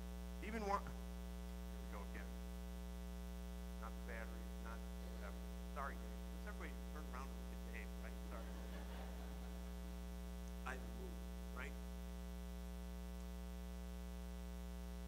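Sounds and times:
electrical mains hum: 0.0 - 15.0.

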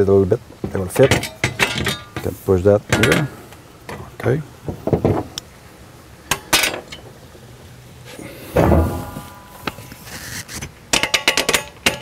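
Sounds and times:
metal bars knocking together: 0.6 - 2.3, 2.9 - 3.3, 6.3 - 7.0, 8.6 - 9.8, 10.9 - 12.0.

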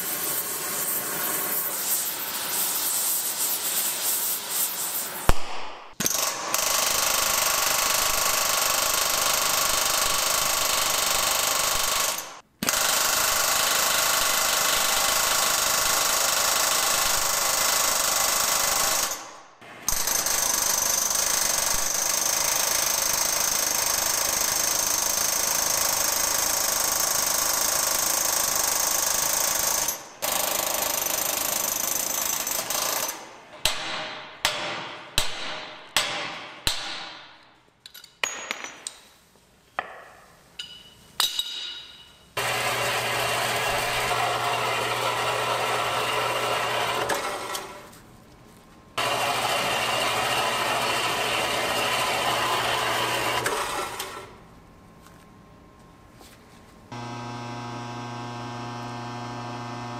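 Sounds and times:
impact tool hammering on metal: 33.6 - 37.4, 39.8 - 42.1.

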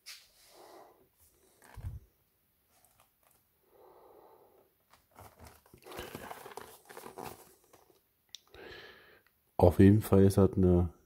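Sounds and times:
cardboard box rustling and scraping: 4.9 - 7.9.

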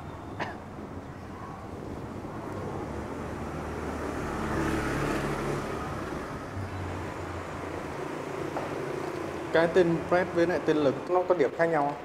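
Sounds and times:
street traffic: 0.0 - 12.0
vehicle passing close by: 2.1 - 10.8.

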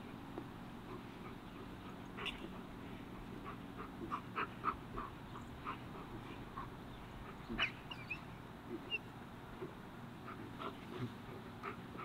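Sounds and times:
steady low hum: 0.0 - 12.0
dog whining in high yips: 7.6 - 8.2.

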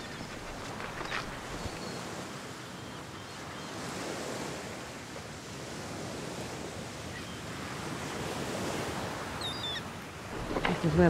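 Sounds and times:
sea surf washing against rocks: 10.1 - 11.0.

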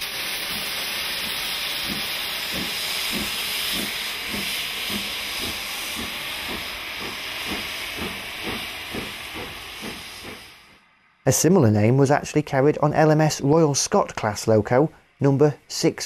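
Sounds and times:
steam locomotive exhaust beat: 0.0 - 11.0
steam hiss: 0.0 - 16.0.

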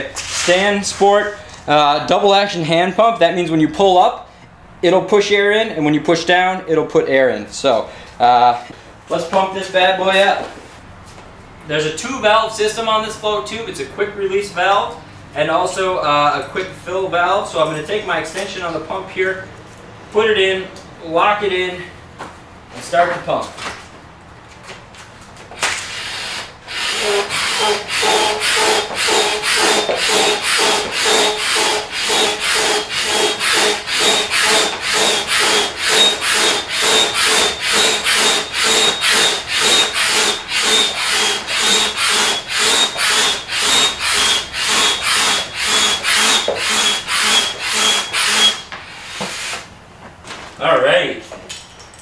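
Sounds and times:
hand pump rasping air: 25.8 - 49.7.

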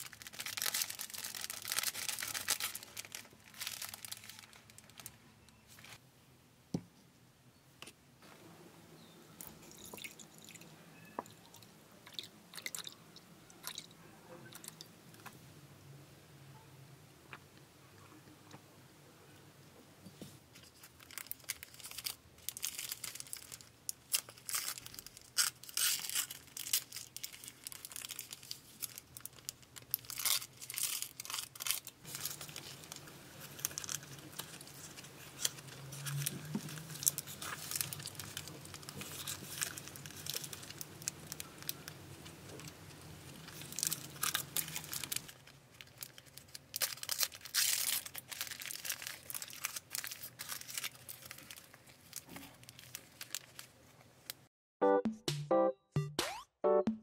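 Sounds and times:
paper wrapper crinkling: 0.0 - 6.0, 20.5 - 54.5.

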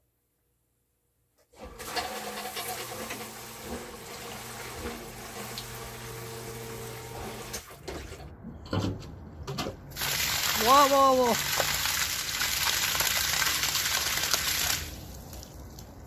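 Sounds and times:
sump pump motor hum: 1.5 - 8.2
water churning: 9.9 - 15.6.

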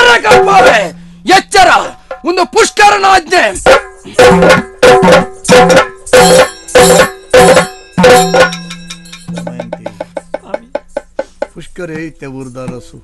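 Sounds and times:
ringing drum strokes: 0.0 - 2.3, 3.6 - 11.6
hand drum strokes: 3.6 - 13.0.

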